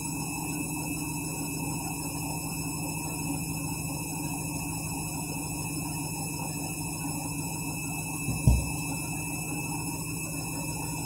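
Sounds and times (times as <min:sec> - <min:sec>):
washing machine motor hum: 0:00.0 - 0:11.0
deep thump of drum: 0:08.3 - 0:08.7.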